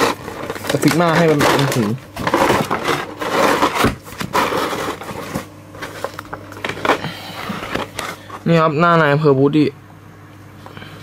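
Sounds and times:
packaging rustling and scraping: 0.0s - 8.5s.

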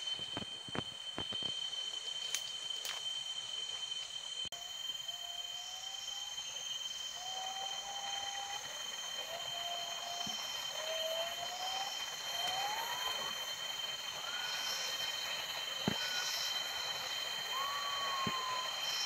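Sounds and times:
insect drone: 0.0s - 19.0s
pigeon whistled notes: 17.5s - 19.0s.

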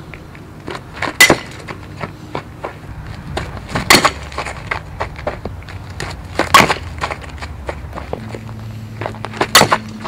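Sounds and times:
bat striking ball: 1.0s - 1.7s, 3.7s - 4.2s, 6.4s - 6.9s, 9.4s - 10.0s.

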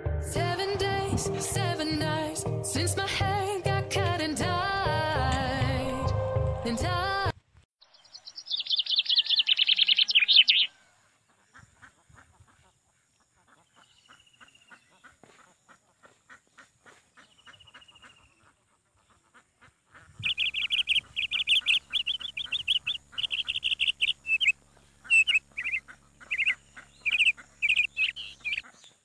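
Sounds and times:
high-pitched bird chirping: 7.8s - 10.7s, 20.2s - 28.7s
ducks quacking: 11.0s - 29.0s
low steady hum: 20.2s - 28.9s.

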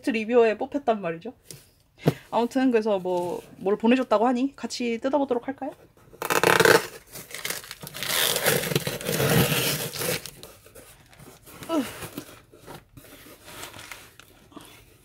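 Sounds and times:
packing tape ripping off cardboard: 6.2s - 10.7s
cardboard flaps rustling and scraping: 7.0s - 15.0s.

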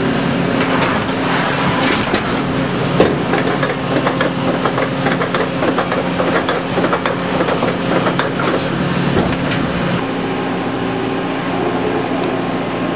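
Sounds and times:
machine humming: 0.0s - 12.9s
machine clicks and knocks: 0.6s - 9.7s.

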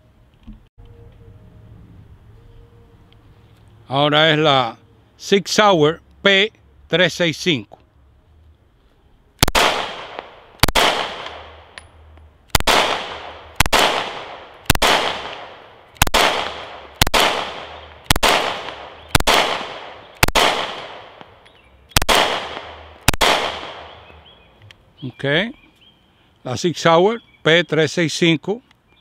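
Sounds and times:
pistol shots echoing: 9.4s - 11.8s, 12.5s - 24.2s.

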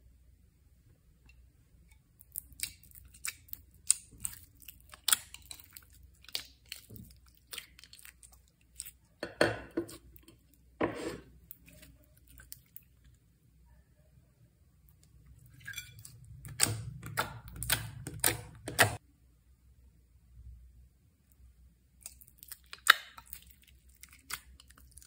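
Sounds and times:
loud slime squelches: 2.2s - 9.2s.

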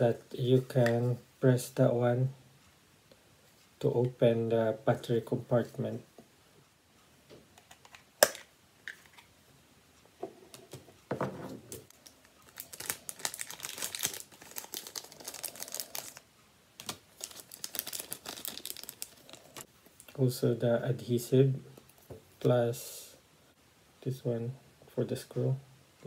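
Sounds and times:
plastic packaging crinkling: 11.8s - 16.2s, 16.8s - 19.7s.

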